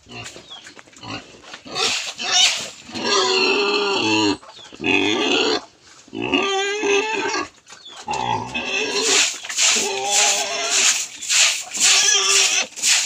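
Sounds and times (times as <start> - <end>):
pig squealing: 1.1 - 11.1, 11.8 - 12.8.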